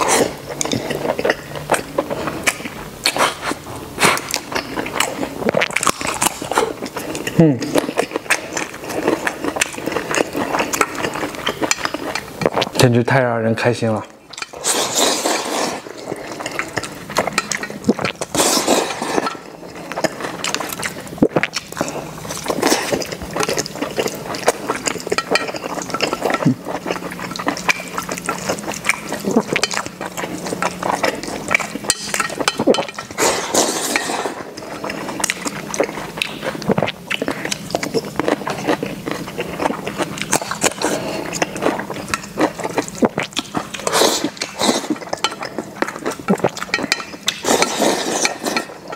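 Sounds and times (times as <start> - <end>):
wet slurping and chewing: 0.0 - 48.9
chopsticks clinking on metal bowl: 24.4 - 26.4, 28.9 - 34.4, 44.7 - 48.9.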